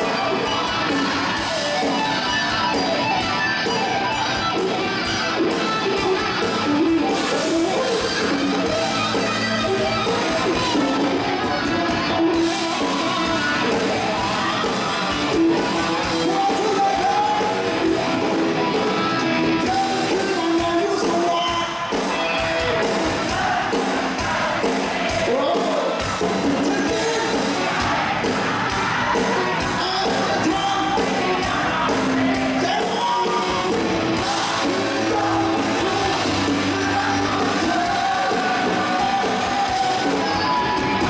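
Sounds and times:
rock band playing: 0:00.0 - 0:41.0
man singing: 0:15.3 - 0:18.1, 0:19.5 - 0:41.0.

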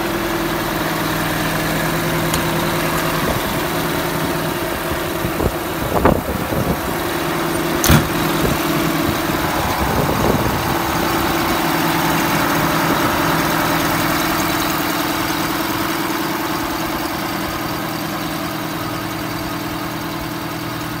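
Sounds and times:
heavy diesel engine idling: 0:00.0 - 0:21.0.

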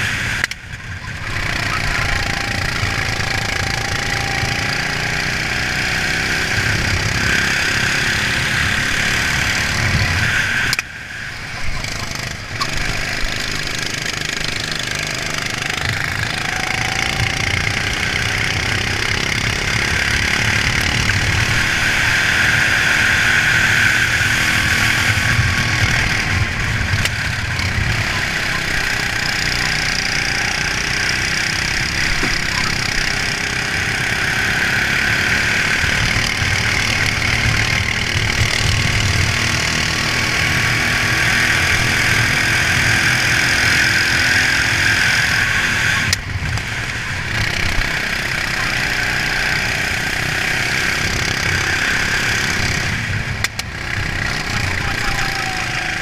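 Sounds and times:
kart engine running hard: 0:00.0 - 0:56.0.

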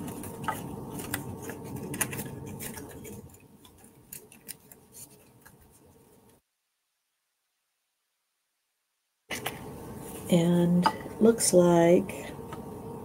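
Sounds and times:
cardstock crackling and rustling: 0:00.0 - 0:06.4.

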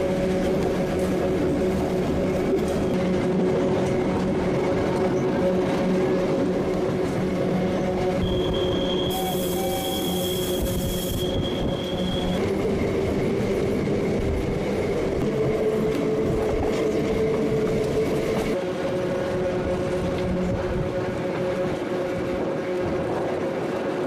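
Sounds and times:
train wheels rumbling on rail: 0:00.0 - 0:24.0
train whine: 0:00.0 - 0:24.0.

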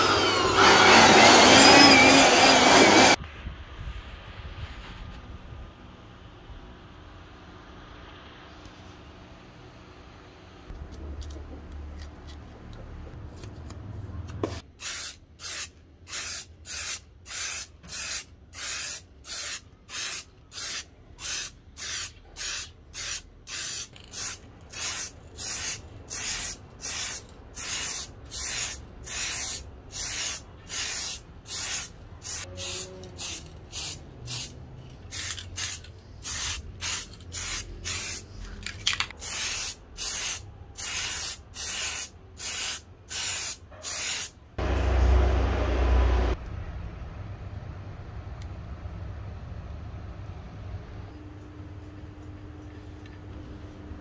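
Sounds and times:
aerosol spray can hissing: 0:14.8 - 0:34.5, 0:35.1 - 0:38.3, 0:39.2 - 0:44.3.

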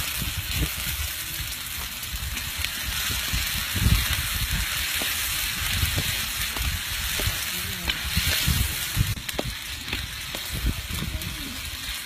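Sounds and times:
food sizzling in hot oil: 0:00.0 - 0:12.0
low rumbles: 0:00.1 - 0:12.0.

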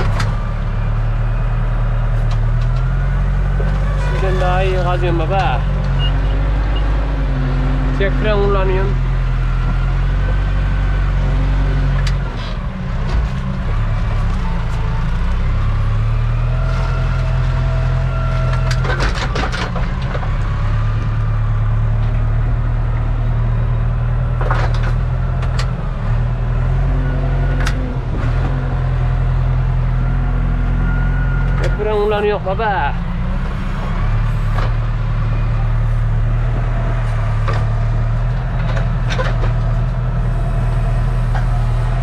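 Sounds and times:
backhoe clanks and knocks: 0:00.0 - 0:00.6, 0:02.0 - 0:06.9, 0:11.4 - 0:15.2, 0:16.6 - 0:23.1, 0:23.9 - 0:26.2, 0:36.1 - 0:42.0
tractor diesel engine running: 0:00.0 - 0:42.0.

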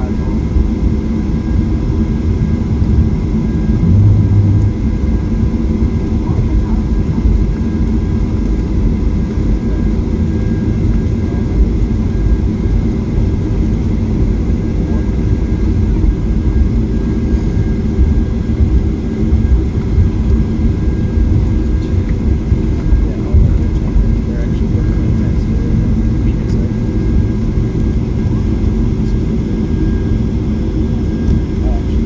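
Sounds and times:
jet engine rumble in cabin: 0:00.0 - 0:32.0
faint whining tones: 0:03.5 - 0:05.5.

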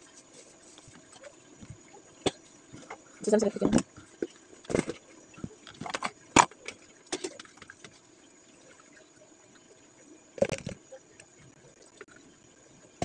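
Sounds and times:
plastic tub clatter: 0:04.6 - 0:05.0.

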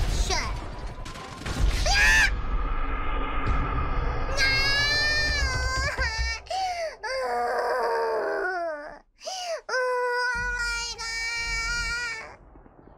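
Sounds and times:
woman shrieking and wailing: 0:04.4 - 0:12.4.

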